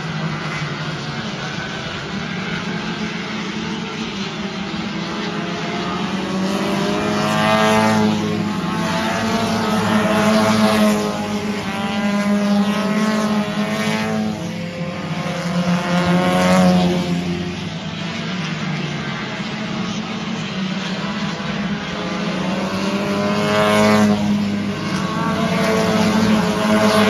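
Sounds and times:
race car engines passing: 0:00.0 - 0:27.0.

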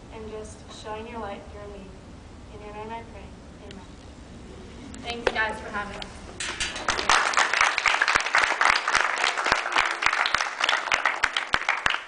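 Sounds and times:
crowd applauding: 0:06.6 - 0:12.0.

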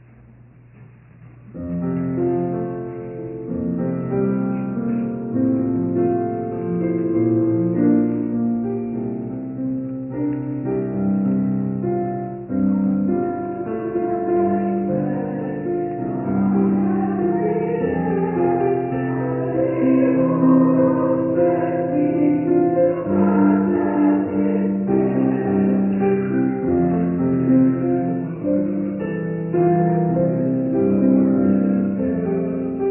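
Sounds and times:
keyboard playing slow chords: 0:01.4 - 0:32.9
voices singing a hymn: 0:13.4 - 0:32.9.

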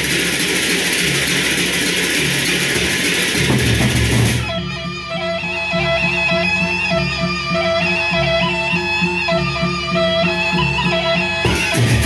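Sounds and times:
large drum strokes: 0:00.0 - 0:04.7, 0:11.4 - 0:12.0.

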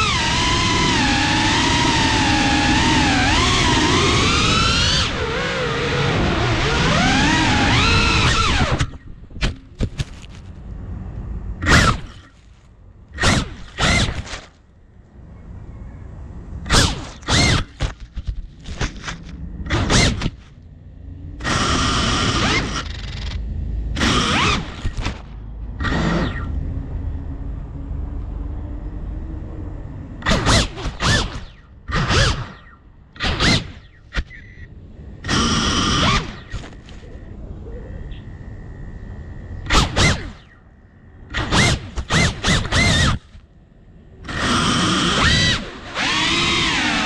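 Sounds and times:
quadcopter motors whining: 0:00.0 - 0:09.8, 0:11.6 - 0:12.4, 0:13.1 - 0:14.5, 0:16.6 - 0:20.4, 0:21.3 - 0:27.2, 0:30.2 - 0:37.8, 0:38.5 - 0:40.6, 0:41.2 - 0:43.4, 0:44.2 - 0:47.0.

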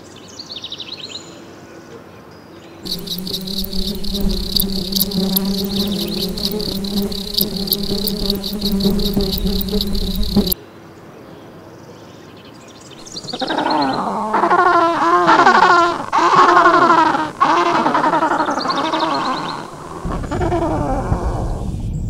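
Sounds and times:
insect chirping: 0:02.8 - 0:10.6, 0:13.0 - 0:20.7
steady insect buzz: 0:02.8 - 0:10.6, 0:13.0 - 0:20.5
wavering gliding cries: 0:02.8 - 0:10.6.

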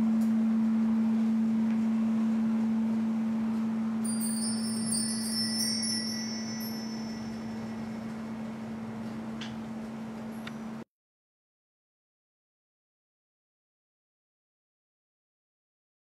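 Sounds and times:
thin high tones: 0:04.0 - 0:08.5
singing bowl low tone: 0:04.0 - 0:09.0.

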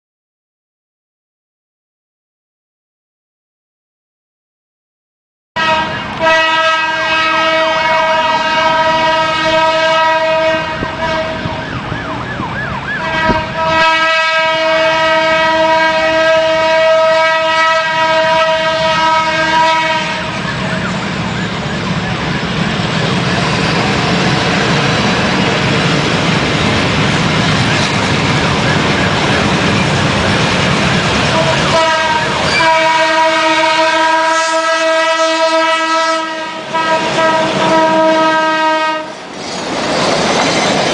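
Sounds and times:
locomotive horn blasts: 0:05.6 - 0:22.8, 0:31.0 - 0:39.2
train engine and wheels rumbling: 0:05.6 - 0:40.9.

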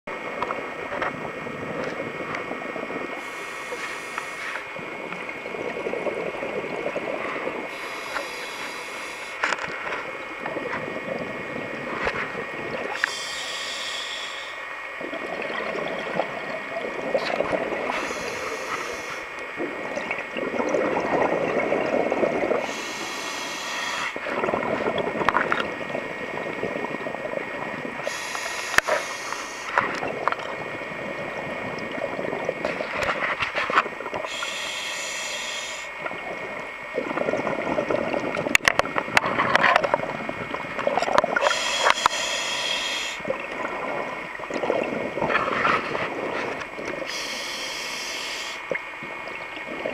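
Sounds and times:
regulator hiss on inhale: 0:03.2 - 0:04.8, 0:07.7 - 0:09.9, 0:12.9 - 0:14.8, 0:17.8 - 0:19.5, 0:22.6 - 0:24.3, 0:28.0 - 0:29.9, 0:34.2 - 0:36.1, 0:41.4 - 0:43.3, 0:46.4 - 0:48.7
bubbling on exhale: 0:15.0 - 0:33.1, 0:40.0 - 0:48.8.

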